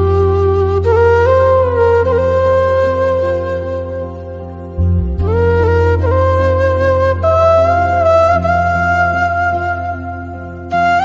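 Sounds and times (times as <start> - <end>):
flute long note: 0.0 - 11.0
low drone: 3.8 - 8.8.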